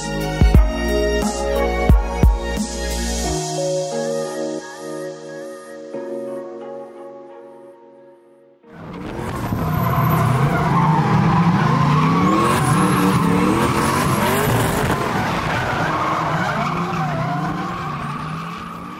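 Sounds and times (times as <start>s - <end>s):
car engine revving: 8.8s - 18.9s
tyres squealing: 9.5s - 18.9s.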